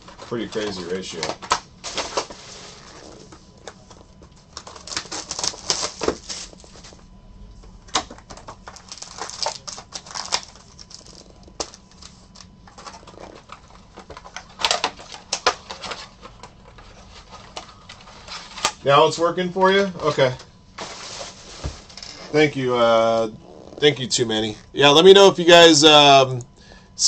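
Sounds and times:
card packs clicking and tapping: 0.0 - 7.0, 7.9 - 18.8
foil wrappers crinkling: 0.0 - 7.1, 7.9 - 18.8.

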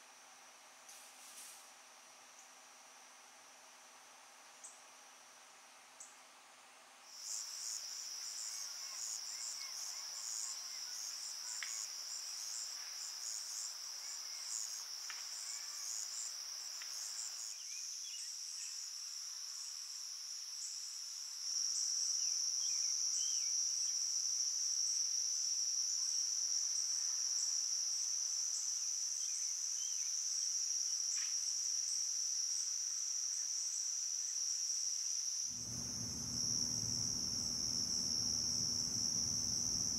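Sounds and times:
insects trilling: 7.1 - 19.0, 25.8 - 39.9
faint pulsing chirps: 35.6 - 39.9.

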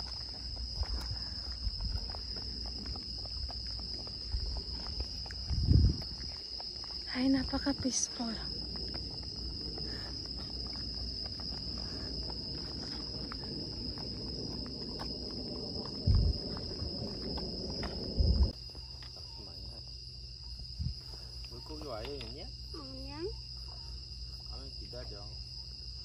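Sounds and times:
night insects chorus: 0.0 - 26.0
dull low thumps: 1.6 - 6.3, 8.6 - 18.6.

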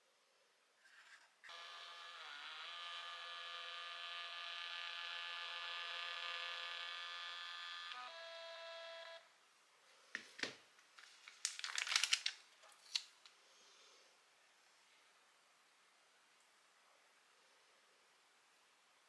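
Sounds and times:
label printer motor whining: 1.5 - 9.2.

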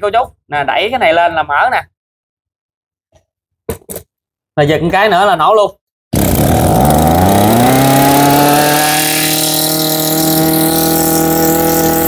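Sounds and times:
two-stroke brush cutter engine idling: 6.2 - 8.5.

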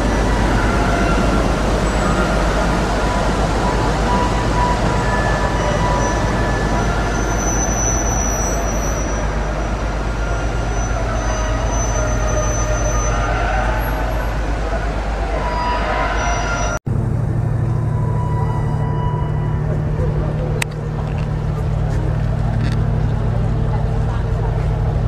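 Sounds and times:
ship engines droning: 0.0 - 25.0
constant hum: 16.8 - 25.0.

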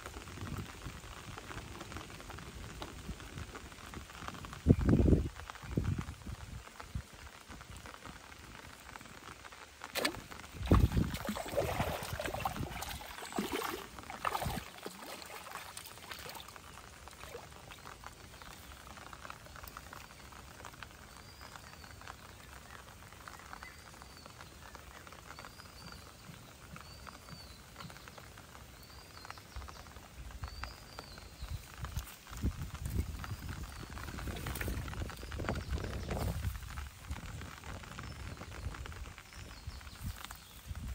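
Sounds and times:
rain pattering on pond water: 0.0 - 40.9
fish splashing and thrashing: 9.8 - 18.6.

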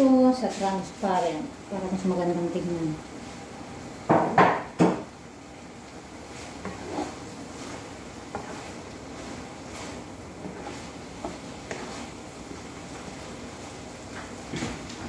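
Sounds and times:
metal ladle stirring in a wok: 6.2 - 13.0.

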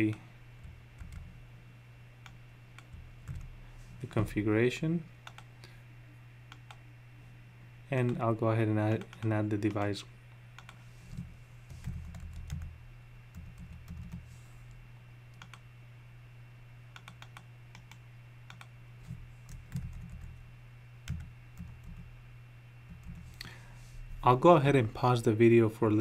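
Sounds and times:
computer keyboard typing: 0.0 - 1.3, 2.2 - 3.5, 5.2 - 5.5, 10.6 - 12.7, 13.3 - 14.2, 15.4 - 15.6, 17.0 - 18.7, 19.5 - 20.4, 21.1 - 22.0
faint low hum: 0.0 - 26.0.

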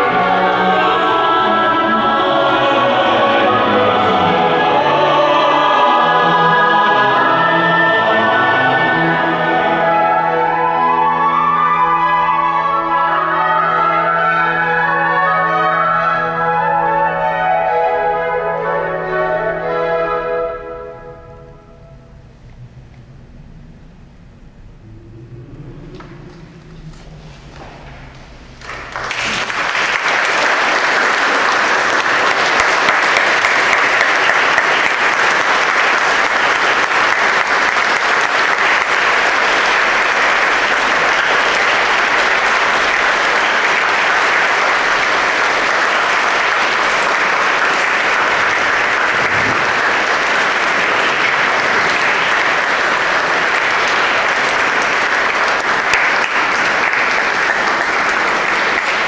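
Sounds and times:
audience applauding: 24.9 - 59.0.

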